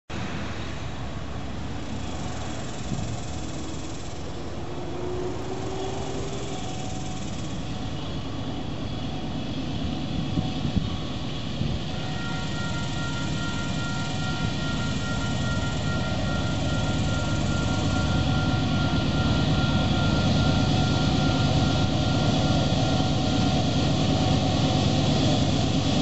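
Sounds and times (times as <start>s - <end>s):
distant freight train rumble: 0.2s - 26.0s.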